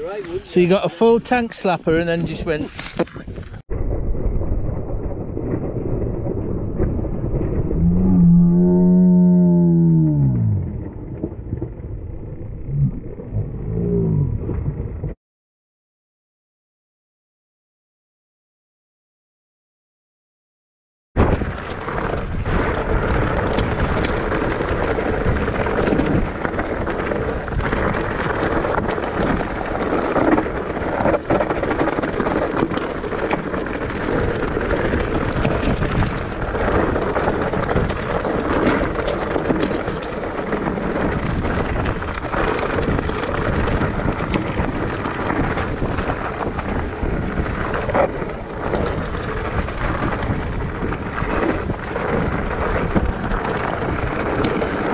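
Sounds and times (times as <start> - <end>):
bike tyres rattling over stones: 0.0 - 8.9, 21.2 - 54.9
wind on microphone: 1.9 - 15.2, 21.2 - 54.9.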